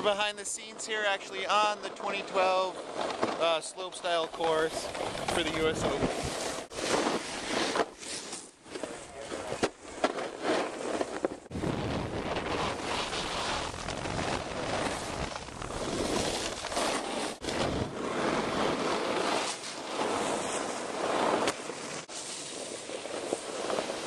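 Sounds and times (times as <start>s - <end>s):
wind rushing over microphone: 11.5s - 16.7s.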